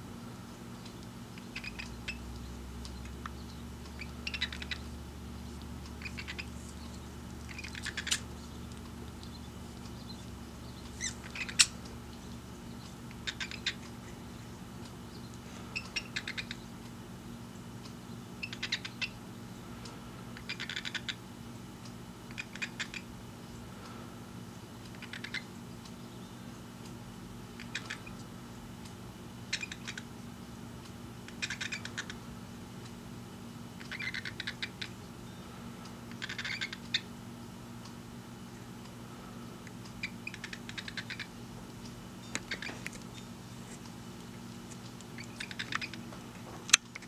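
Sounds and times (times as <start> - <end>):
low steady hum: 0.0 - 47.0
bird beak clicking: 5.6 - 12.2, 33.8 - 34.9, 39.6 - 41.3, 44.8 - 46.0.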